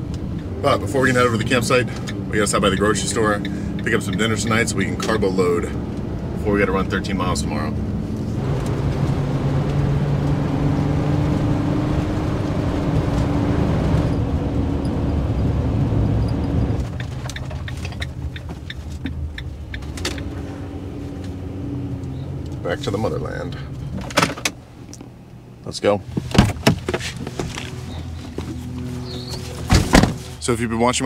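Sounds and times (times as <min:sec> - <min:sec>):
engine hum: 0:00.0 - 0:31.0
road noise: 0:00.0 - 0:31.0.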